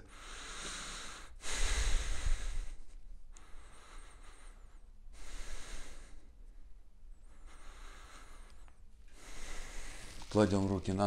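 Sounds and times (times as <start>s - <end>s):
man breathing through nose: 0.0s - 10.3s.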